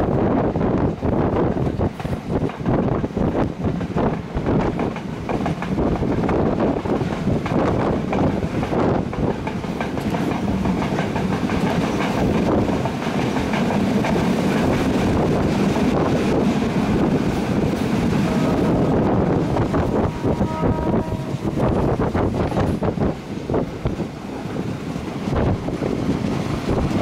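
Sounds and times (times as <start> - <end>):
train wheels clattering over rail joints: 0.9 - 18.4.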